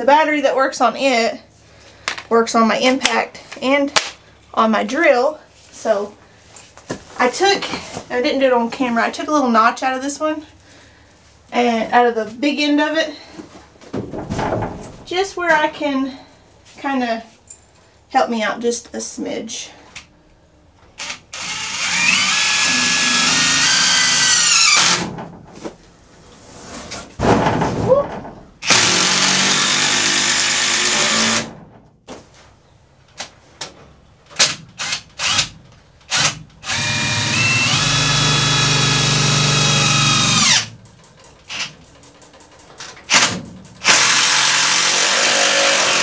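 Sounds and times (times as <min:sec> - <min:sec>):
cordless drill whining: 0:21.0 - 0:25.0, 0:28.6 - 0:31.4, 0:36.1 - 0:40.7, 0:43.8 - 0:46.0
power tool motor whining: 0:21.0 - 0:25.0.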